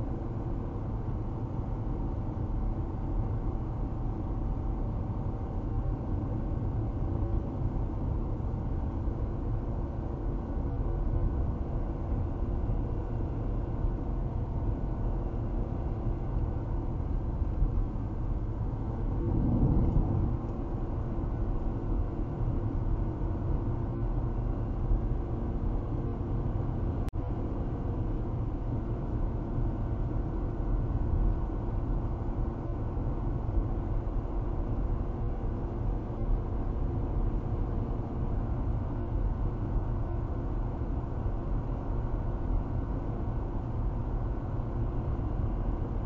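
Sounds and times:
car engine hum: 14.1 - 24.3
road and tyre noise: 17.0 - 23.0
low rumble: 18.2 - 23.6.

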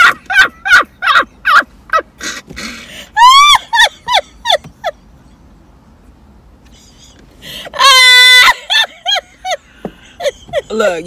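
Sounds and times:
women laughing in whooping bursts: 2.9 - 5.0.

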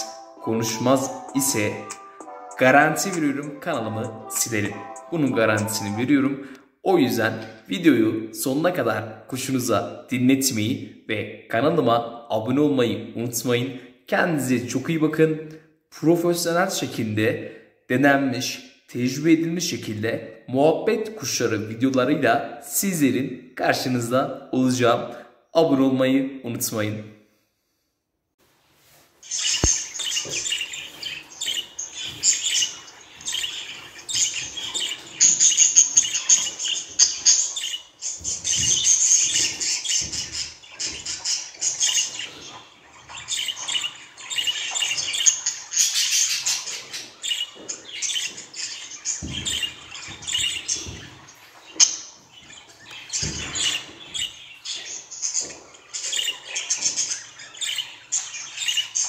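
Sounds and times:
budgerigar warbling: 29.4 - 51.0.

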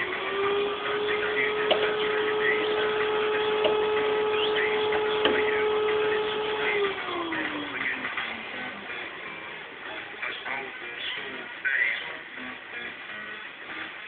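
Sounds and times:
electric motor humming: 0.0 - 10.2.

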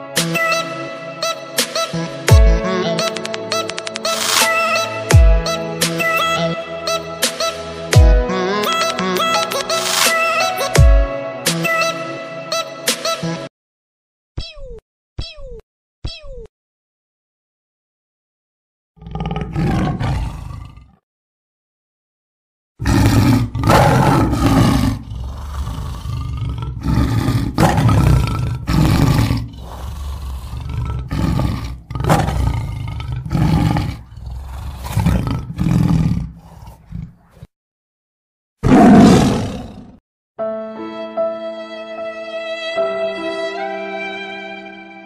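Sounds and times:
big cat roaring and growling: 19.0 - 21.0, 22.8 - 37.5, 38.6 - 40.0.

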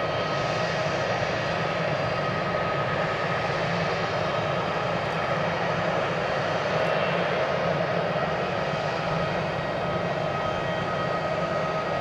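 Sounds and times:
jet engines rumbling and whining: 0.0 - 12.0.

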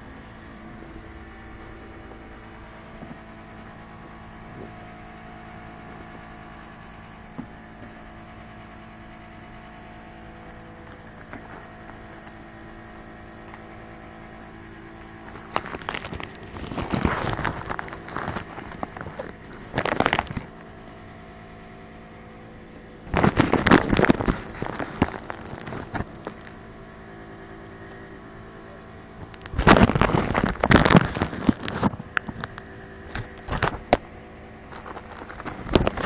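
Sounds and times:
low electrical hum: 0.0 - 36.0
crackling and rustling on microphone: 10.7 - 20.8, 23.1 - 26.7, 29.1 - 36.0.

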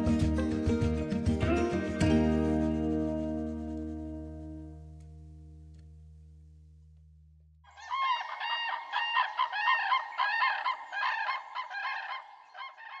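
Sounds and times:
flock of birds calling: 7.7 - 13.0.

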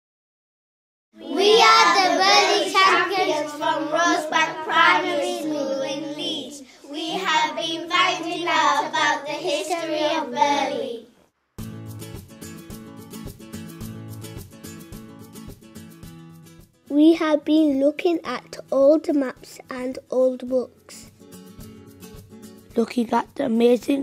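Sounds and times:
strummed acoustic guitar: 1.2 - 5.5, 11.6 - 23.9
children singing together: 1.2 - 11.1.

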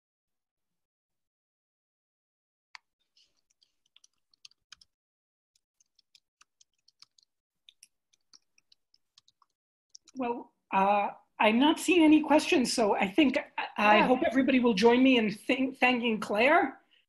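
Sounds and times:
keyboard typing: 3.2 - 4.9, 5.6 - 10.2.

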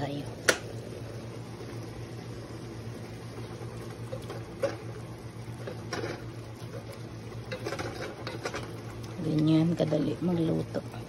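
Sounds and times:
steady low hum: 0.0 - 11.0
wooden spoon scraping pot: 5.6 - 8.8.

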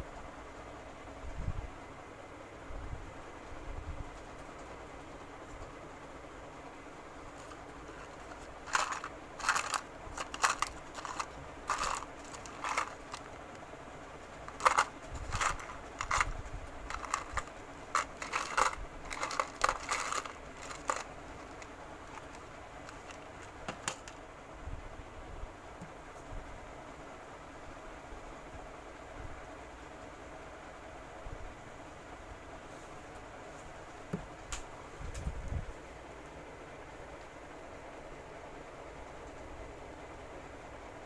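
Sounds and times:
crinkling and rustling: 7.3 - 24.2.

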